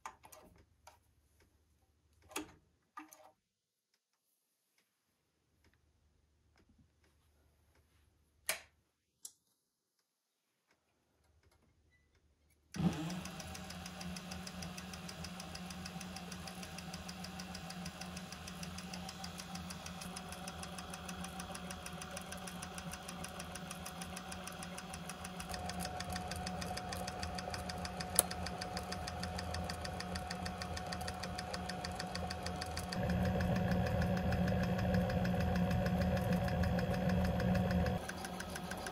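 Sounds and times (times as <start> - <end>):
sewing machine running: 12.8 - 38.9.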